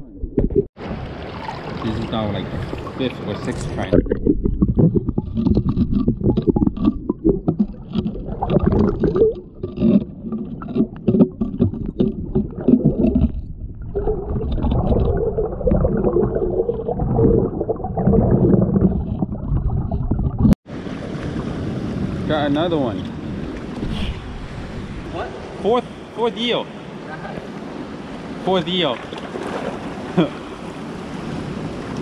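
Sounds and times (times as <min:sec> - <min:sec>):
underwater surge rumbling and sloshing: 0:00.0 - 0:25.6
small underwater clicks and crackles: 0:03.9 - 0:16.7.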